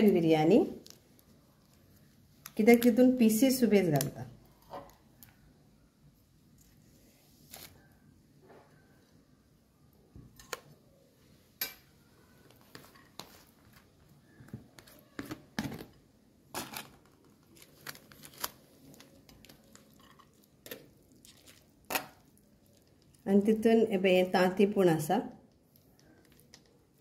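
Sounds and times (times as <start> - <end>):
foil crinkling: 16.6 - 23.1.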